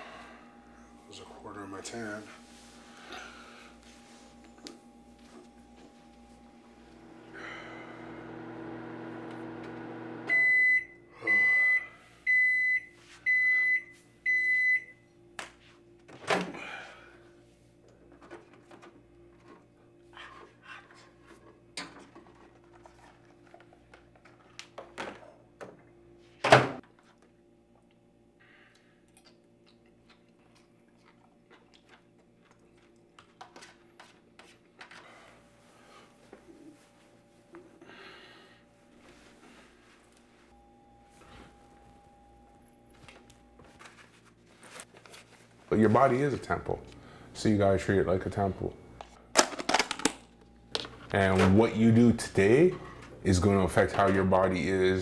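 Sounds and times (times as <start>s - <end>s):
microwave oven humming: 0.0s - 20.6s, 35.0s - 44.5s, 45.7s - 49.3s
microwave beeps: 9.9s - 15.1s, 40.5s - 43.6s.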